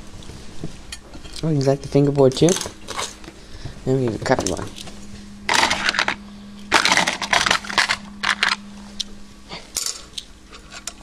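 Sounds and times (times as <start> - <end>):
low steady hum: 0.0 - 11.0
small objects clattering in drawers: 5.5 - 8.6.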